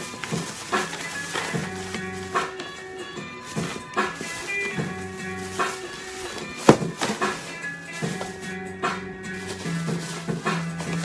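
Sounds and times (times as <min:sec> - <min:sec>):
background music: 0:00.0 - 0:11.0.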